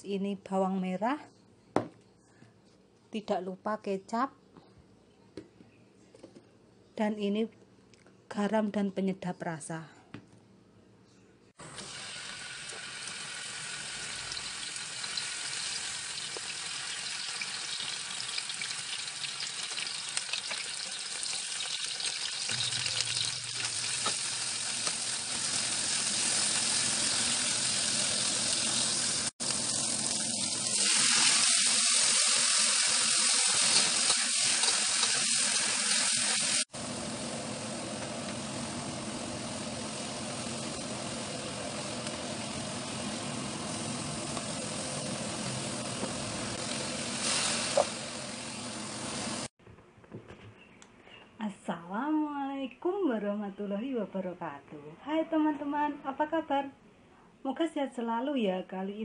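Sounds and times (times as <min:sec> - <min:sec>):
oil sizzling in a wok: 0:11.6 - 0:49.5.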